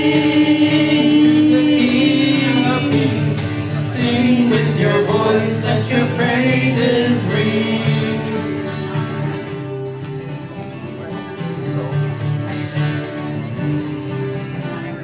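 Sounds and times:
woman singing into a microphone: 0.0s - 3.3s
acoustic guitar strumming chords: 0.0s - 15.0s.

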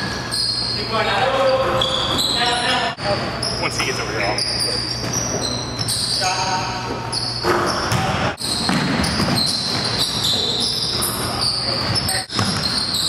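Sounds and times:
sneakers squeaking on floor: 0.0s - 13.0s
players' voices: 2.4s - 4.8s
basketball bouncing: 7.4s - 10.3s, 11.8s - 13.0s.

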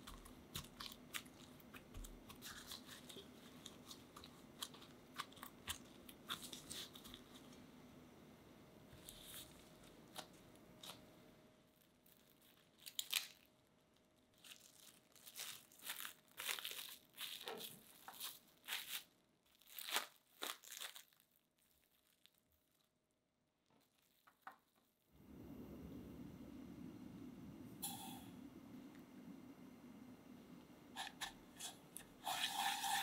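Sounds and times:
plastic cling wrap crinkling: 0.0s - 7.6s, 11.6s - 25.0s.

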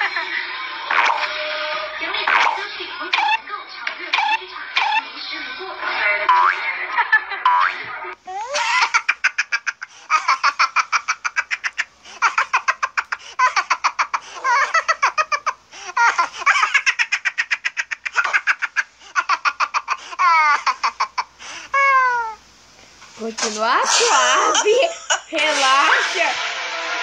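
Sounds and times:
high-pitched laughter: 0.0s - 0.5s, 6.4s - 22.4s.

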